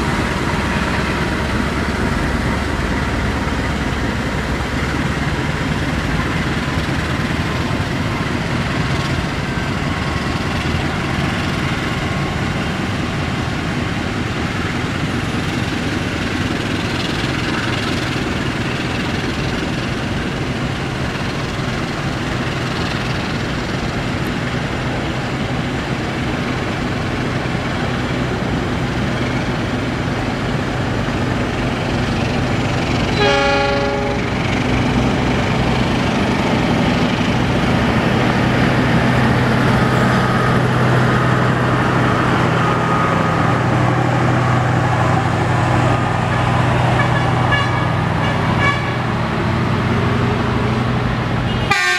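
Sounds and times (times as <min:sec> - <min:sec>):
train wheels rumbling on rails: 0:00.0 - 0:51.9
train horn: 0:33.1 - 0:34.4, 0:47.0 - 0:49.1, 0:51.5 - 0:51.9.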